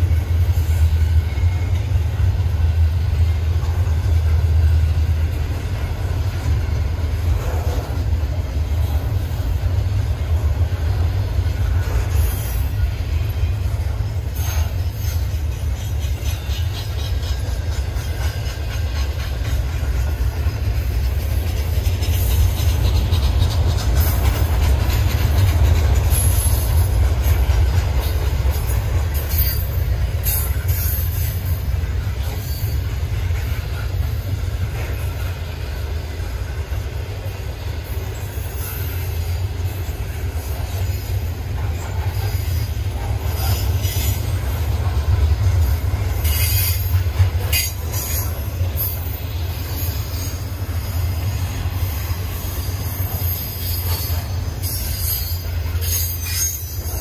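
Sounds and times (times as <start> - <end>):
freight train rumbling: 0.0 - 57.0
wheels squealing: 10.4 - 36.0, 37.7 - 57.0.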